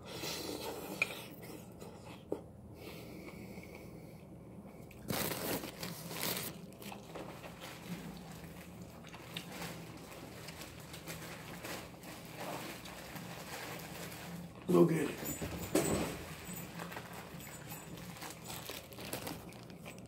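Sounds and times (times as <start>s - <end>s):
chewing vegetables: 4.6s - 14.9s, 16.3s - 20.0s
rustling crunch: 5.0s - 20.0s.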